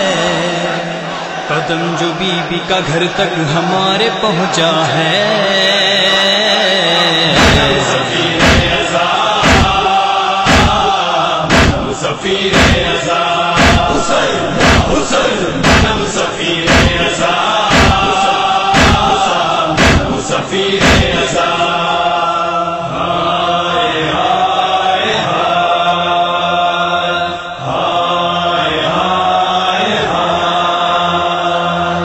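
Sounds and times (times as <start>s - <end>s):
men chanting in chorus: 0.0s - 32.0s
chest-beating slaps: 7.4s - 13.0s, 13.6s - 21.4s.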